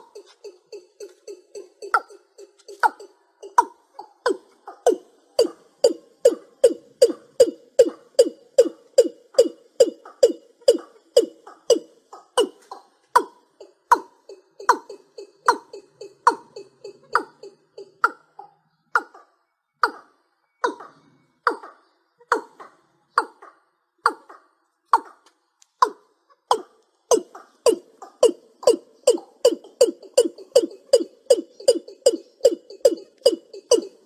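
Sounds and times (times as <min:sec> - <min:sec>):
bird calling falling notes: 0:25.8 - 0:34.0.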